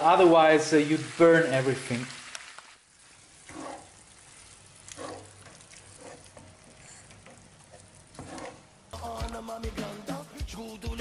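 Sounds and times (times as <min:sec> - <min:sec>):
pasta sizzling in a frying pan: 0:00.0 - 0:08.9
wooden spoon scraping and stirring: 0:03.0 - 0:08.8.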